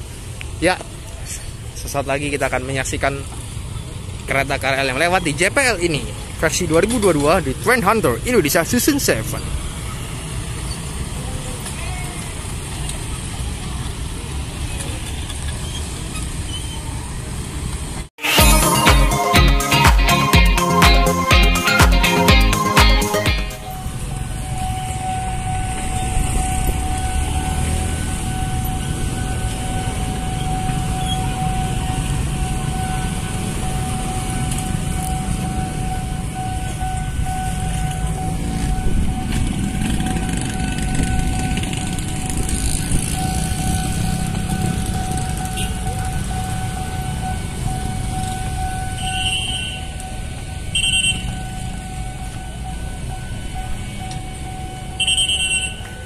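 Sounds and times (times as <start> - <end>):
steady tone: 18.2 - 25.2
motorbike engines passing: 23.6 - 48.8.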